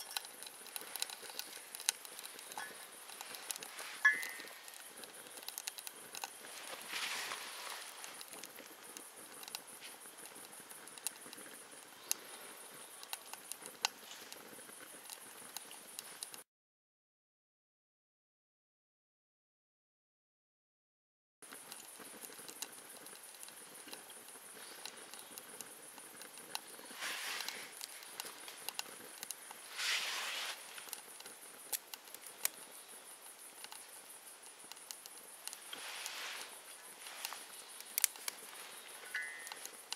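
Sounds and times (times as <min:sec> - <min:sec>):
faint stove hiss: 0:00.0 - 0:16.4, 0:21.4 - 0:39.9
insects chirping: 0:00.0 - 0:16.4, 0:21.4 - 0:39.9
wood fire crackling and popping: 0:00.0 - 0:16.4, 0:21.4 - 0:39.9
rushing hiss: 0:26.8 - 0:31.6, 0:35.5 - 0:39.9.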